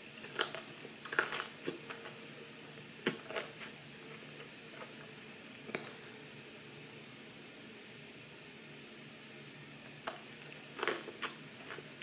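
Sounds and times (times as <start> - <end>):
broccoli crunching while chewed: 0.0 - 6.0, 9.8 - 12.0.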